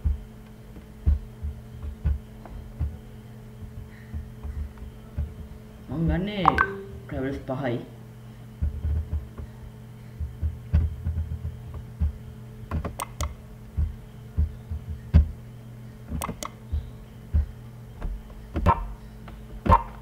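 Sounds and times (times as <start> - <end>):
electrical hum: 0.0 - 20.0
soft low thumps: 1.0 - 3.0, 13.7 - 15.4
computer mouse clicks: 16.2 - 16.6.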